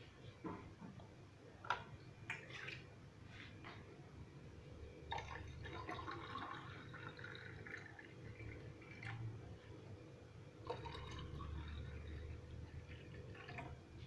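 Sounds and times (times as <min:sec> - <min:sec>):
water pouring into glass: 0:05.1 - 0:09.2, 0:10.6 - 0:13.8.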